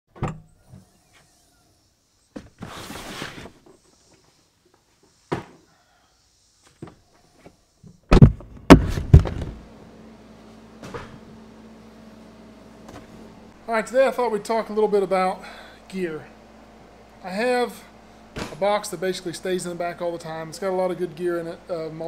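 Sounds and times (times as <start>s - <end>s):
steady low hum: 6.3s - 22.0s
loud thumps: 8.0s - 9.6s.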